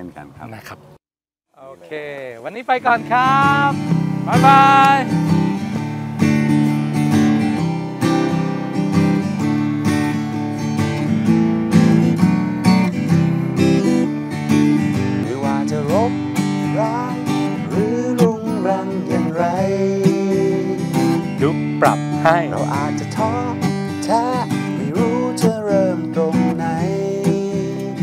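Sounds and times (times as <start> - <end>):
acoustic guitar strumming: 2.8 - 28.0
person singing: 15.2 - 28.0.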